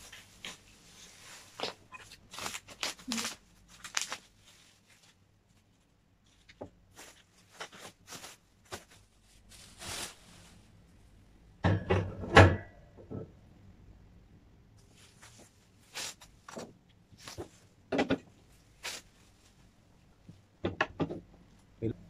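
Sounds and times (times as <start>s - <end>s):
plastic wrap crinkling and tearing: 0.0s - 5.2s, 6.3s - 10.7s, 18.7s - 19.6s
knock and rattle: 20.6s - 21.4s.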